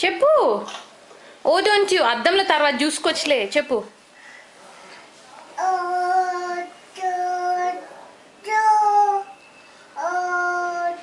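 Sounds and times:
toddler singing drawn-out notes: 8.4 - 9.4, 10.0 - 11.0.

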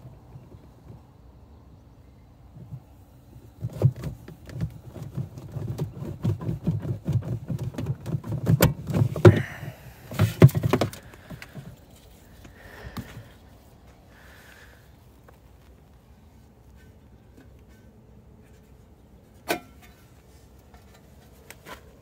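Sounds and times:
rubber cord dragging and knocking: 3.6 - 12.1.

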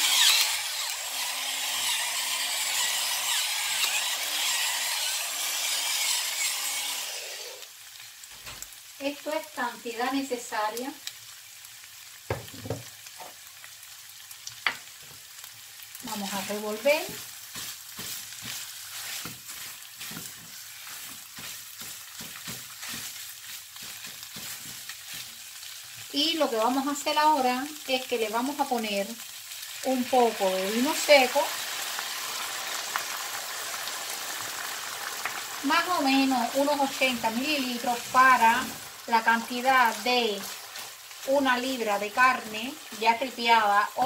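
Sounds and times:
pepper mill grinding: 0.0 - 7.7, 16.1 - 26.1, 34.9 - 43.4
meat sizzling in frying pan: 0.0 - 44.0
spatula scraping pan: 16.1 - 26.1, 35.7 - 44.0.

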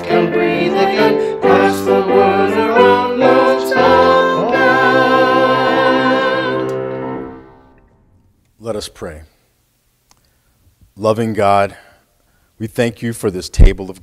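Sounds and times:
person singing slow song: 0.0 - 6.8
musical accompaniment: 0.0 - 8.2.

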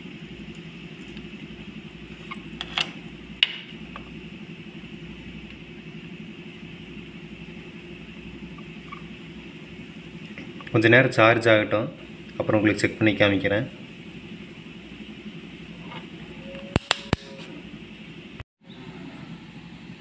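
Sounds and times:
steady background hum: 0.0 - 20.0.

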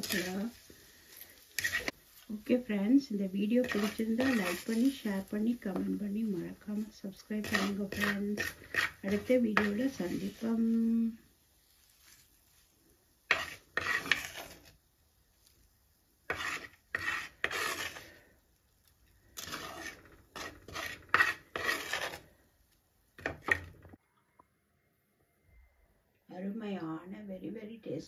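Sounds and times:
ladle scraping clay pot: 1.6 - 2.0, 3.6 - 5.8, 7.4 - 10.6, 13.3 - 14.8, 16.3 - 18.3, 19.2 - 22.4.

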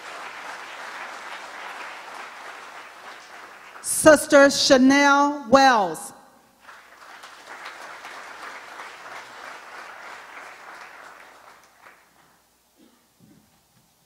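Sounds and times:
crowd clapping: 0.0 - 4.6, 6.6 - 12.4.

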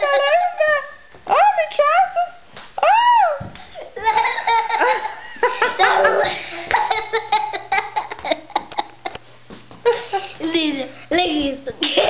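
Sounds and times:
girl laughing and giggling: 0.0 - 1.0, 3.2 - 9.2, 9.8 - 12.0
girl squealing: 2.8 - 3.5, 5.8 - 7.2.

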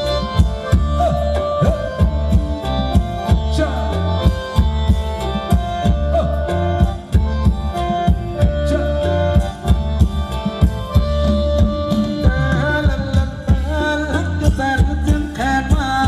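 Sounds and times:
live band dance music: 0.0 - 16.0
person singing: 0.9 - 2.3, 11.9 - 16.0.

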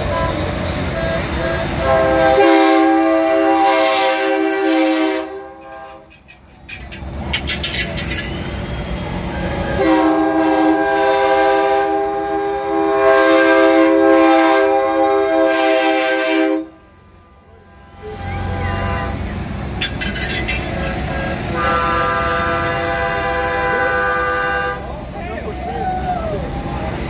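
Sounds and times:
truck air horn chord: 0.0 - 6.2, 9.3 - 19.3, 21.1 - 24.9
truck rumbling past: 0.0 - 27.0.

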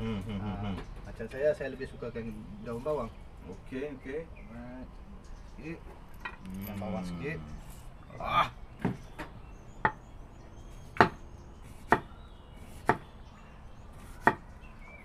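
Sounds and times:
knife chopping on wooden board: 8.8 - 10.0, 10.8 - 13.1, 14.0 - 14.5.

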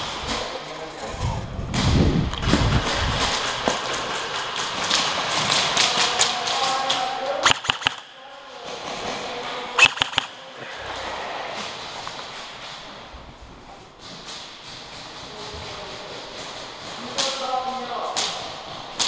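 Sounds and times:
airsoft rifle bursts: 7.4 - 8.1, 9.8 - 10.4
footsteps: 9.8 - 17.4.

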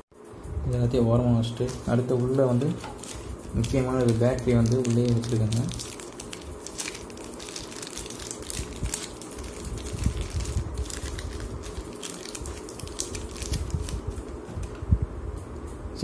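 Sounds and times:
plastic bag crinkling: 1.8 - 14.3.

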